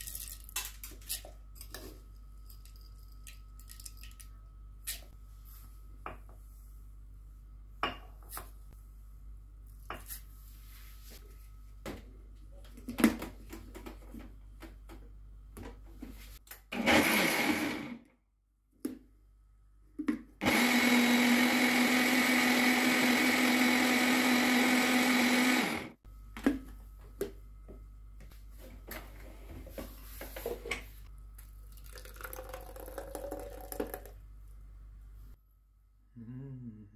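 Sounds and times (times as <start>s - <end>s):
blender motor humming: 16.8s - 18.0s, 20.4s - 26.0s.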